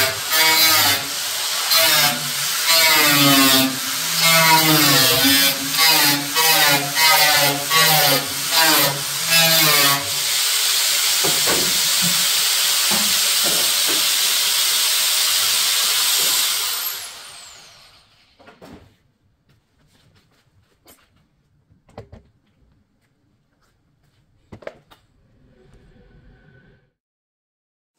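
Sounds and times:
angle grinder cutting steel: 0.0s - 18.2s
grinder spinning down: 0.0s - 18.2s.

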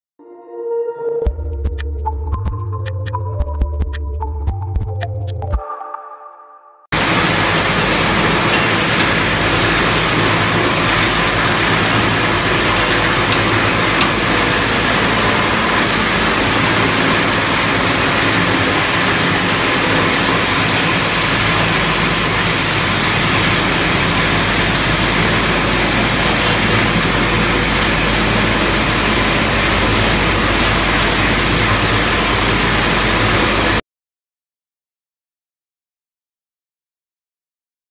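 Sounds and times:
low motor hum: 1.3s - 5.4s, 7.0s - 33.8s
grinding machinery running: 7.0s - 33.8s.

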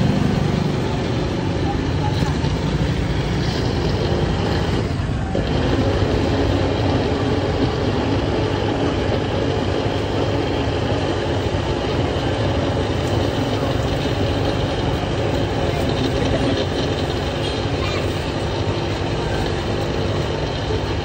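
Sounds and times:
electric blender running: 0.0s - 21.0s.

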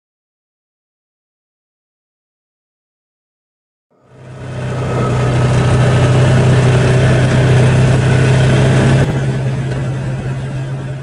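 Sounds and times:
vehicle engine running: 4.0s - 11.0s.

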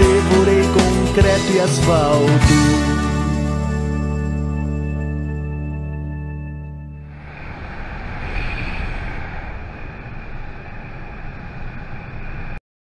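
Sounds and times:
music track: 0.0s - 7.2s
wind buffeting: 7.1s - 12.6s.

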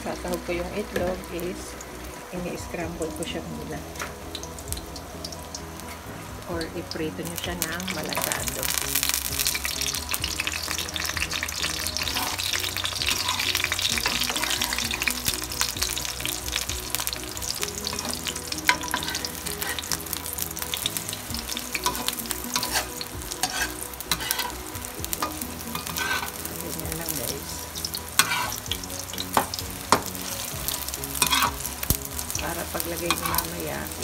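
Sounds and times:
eggs sizzling in oil: 0.0s - 34.0s
metal spatula scraping a pan: 9.2s - 16.1s, 17.8s - 26.5s, 28.2s - 32.0s, 33.0s - 33.6s.

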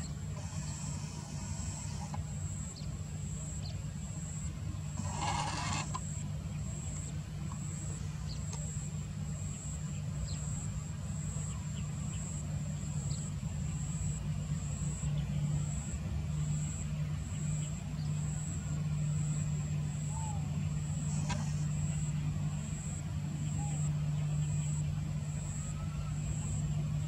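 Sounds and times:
distant propeller aircraft drone: 0.0s - 27.0s
faint chirps: 0.0s - 27.0s
pulsing high whine: 0.0s - 27.0s.

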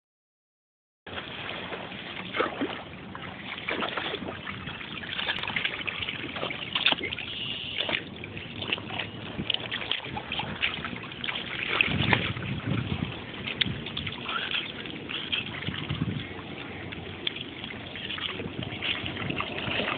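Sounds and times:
water splashing: 1.1s - 19.9s
wind rumble on microphone: 1.1s - 19.9s.

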